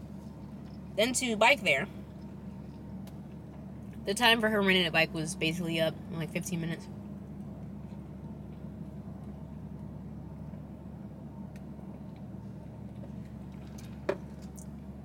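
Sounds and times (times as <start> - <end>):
car idling from inside cabin: 0.0 - 15.0.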